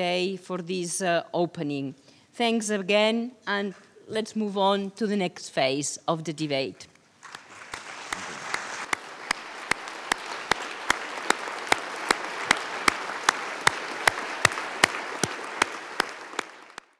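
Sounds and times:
audience applauding: 7.2 - 16.9
loud close hand clapping: 7.2 - 16.9.

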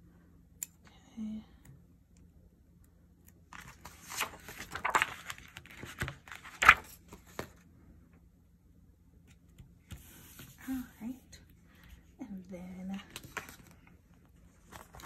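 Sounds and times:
plastic sheet crinkling: 3.6 - 7.0.

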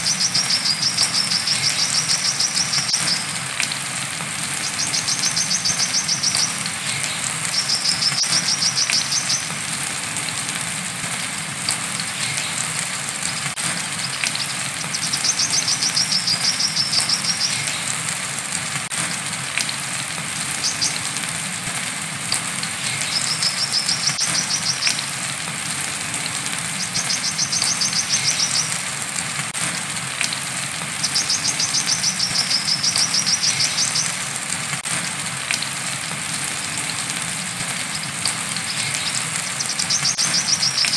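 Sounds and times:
bird high rapid trill: 0.0 - 3.4, 4.4 - 9.7, 12.0 - 18.0, 20.5 - 21.1, 22.7 - 25.1, 26.7 - 28.8, 31.0 - 34.3, 37.8 - 40.9
rain hiss: 0.0 - 40.9.

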